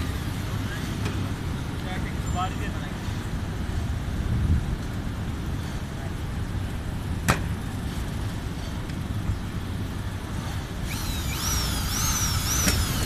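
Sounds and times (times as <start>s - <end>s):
wind rumble on microphone: 0.0s - 13.0s.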